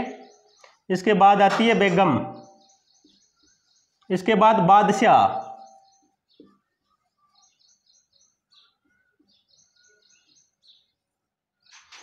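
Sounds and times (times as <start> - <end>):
faint high bird chirps: 0.0 - 0.9, 2.0 - 4.2, 5.3 - 11.0.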